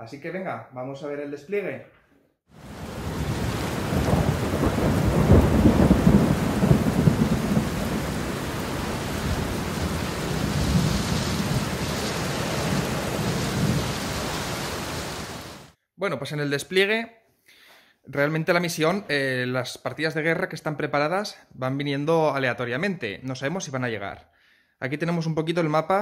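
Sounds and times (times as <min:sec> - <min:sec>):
steady rain: 0:02.6 - 0:15.7
low rolling thunder: 0:02.7 - 0:15.7.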